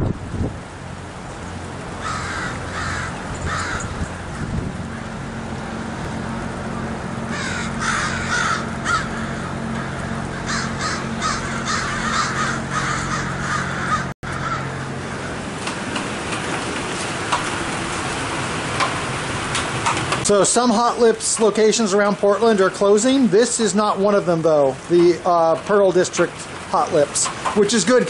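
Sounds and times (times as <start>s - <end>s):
steady low hum: 0.0s - 27.2s
crows cawing: 2.0s - 5.1s, 7.2s - 15.5s.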